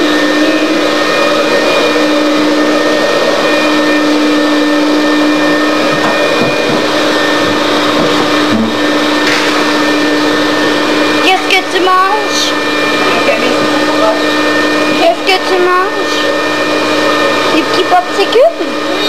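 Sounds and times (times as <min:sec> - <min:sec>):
electric motor whirring: 0:00.0 - 0:19.0.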